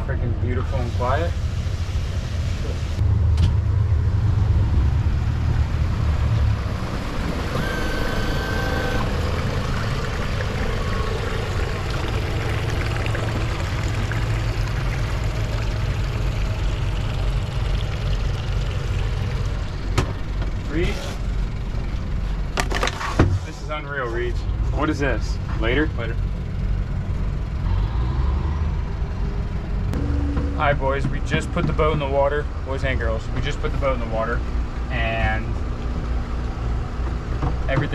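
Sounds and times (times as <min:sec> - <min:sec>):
water noise: 0:00.0 - 0:22.6
outboard motors idling: 0:00.0 - 0:27.6, 0:28.9 - 0:37.9
high beep: 0:07.6 - 0:09.1.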